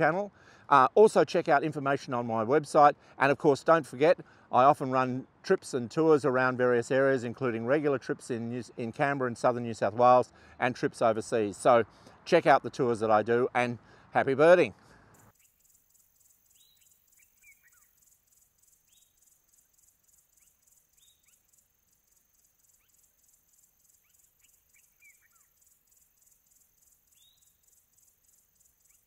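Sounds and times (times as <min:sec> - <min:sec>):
bird chirps: 0:15.1 - 0:29.0
pulsing insect trill: 0:15.1 - 0:29.0.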